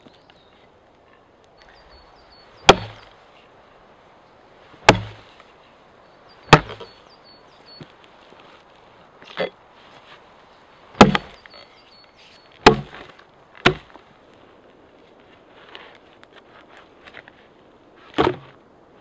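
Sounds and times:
axe chopping into log: 2.6s - 3.1s, 4.8s - 5.3s, 6.5s - 6.9s, 11.0s - 11.4s, 12.6s - 14.0s, 18.1s - 18.6s.

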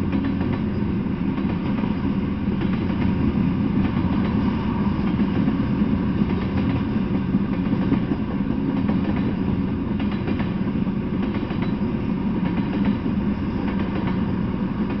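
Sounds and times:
train wheels rumbling on rail: 0.0s - 15.0s
wheels clicking over rail joints: 6.2s - 15.0s.

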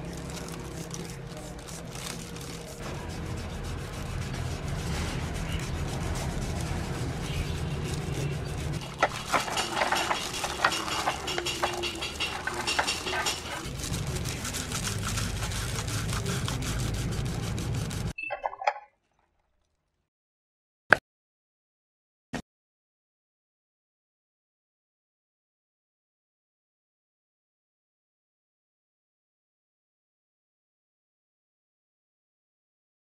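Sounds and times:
toothbrush scrubbing metal parts: 0.0s - 18.2s
metal parts clinking in basin: 8.8s - 15.4s.

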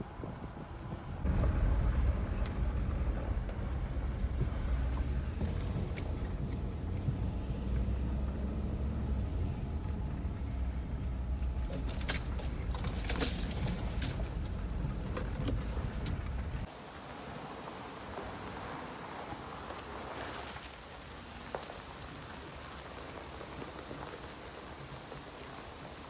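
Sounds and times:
truck engine and road rumble: 0.0s - 26.0s
gravel clicks and crackles: 9.9s - 16.7s, 17.7s - 26.0s.

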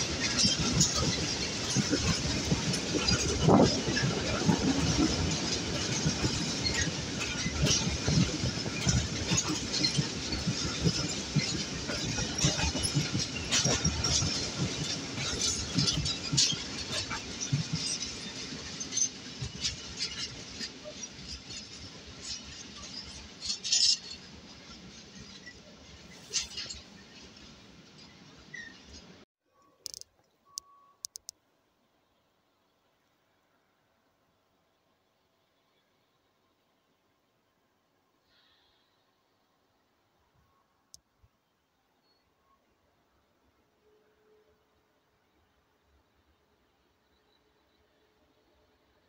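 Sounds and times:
freight train wheels rumbling: 0.0s - 29.2s.

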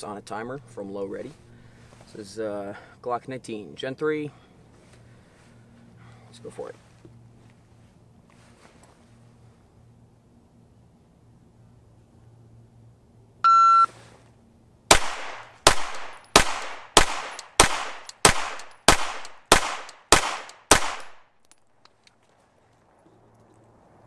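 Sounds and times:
shot timer beep: 13.4s - 13.9s
pistol shots: 14.9s - 21.3s.

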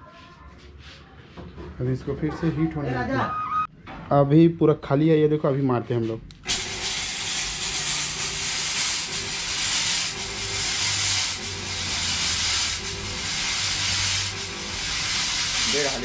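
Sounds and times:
fog machine hissing: 6.5s - 16.0s.

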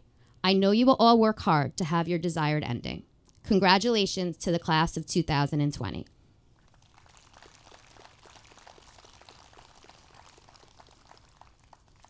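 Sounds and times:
distant audience clapping: 6.6s - 12.0s.

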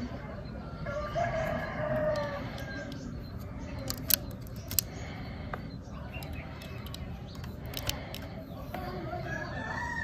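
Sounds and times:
rooster crowing: 0.8s - 2.4s, 9.2s - 10.0s
sharp clicks: 2.6s - 5.1s, 6.1s - 8.4s.

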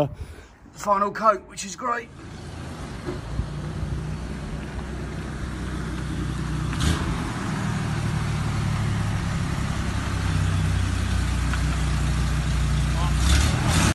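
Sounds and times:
engine humming: 2.1s - 13.9s.

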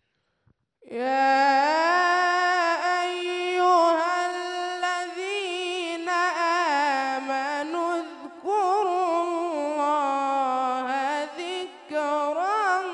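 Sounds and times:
man chanting melodically: 1.6s - 12.9s.

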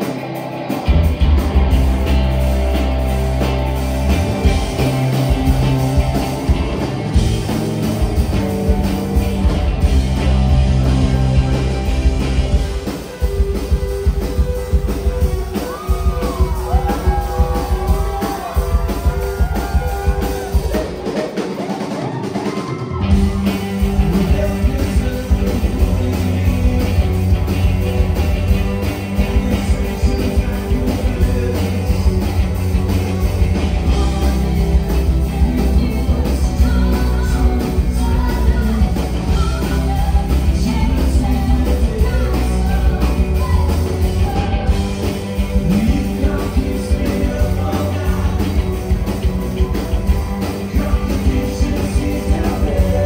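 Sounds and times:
bass guitar: 0.0s - 21.0s, 22.0s - 53.0s
drum kit: 0.0s - 53.0s
electric guitars: 0.0s - 53.0s
person singing: 22.0s - 27.0s, 29.0s - 32.6s, 33.8s - 49.0s, 50.4s - 53.0s.

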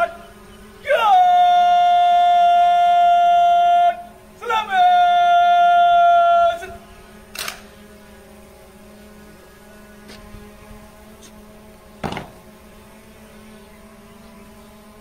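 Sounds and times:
person shouting drill command: 0.8s - 6.9s.

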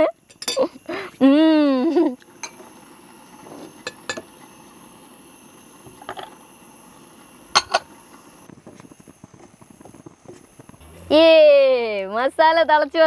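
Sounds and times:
metal cooking utensils clinking: 0.3s - 0.8s.

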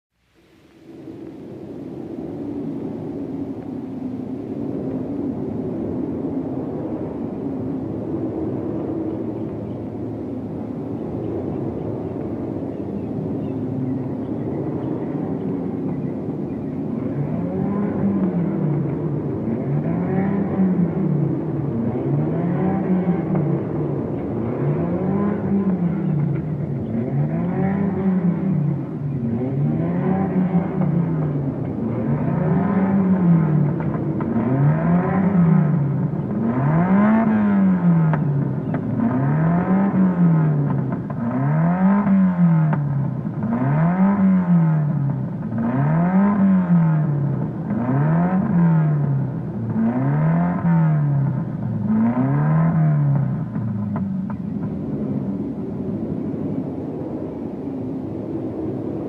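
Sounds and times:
racing car engine revving: 13.9s - 57.5s.

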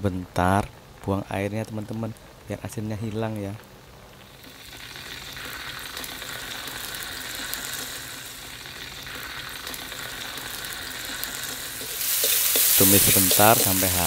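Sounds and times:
oil sizzling in a wok: 4.1s - 14.0s.

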